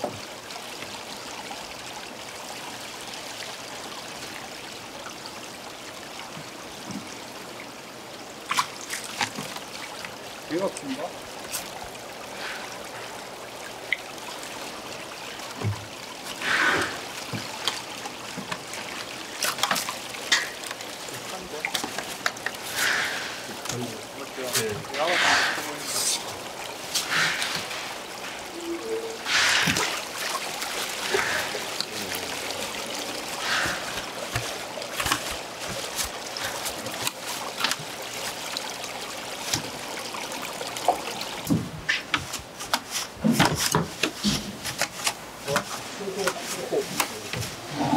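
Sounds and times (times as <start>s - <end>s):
water trickling into tanks: 0.0s - 47.9s
net splashing in water: 29.0s - 39.7s.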